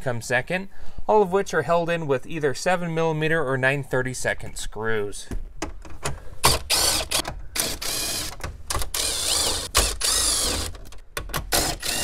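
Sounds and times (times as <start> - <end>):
cordless driver motor whine: 9.0 - 10.7.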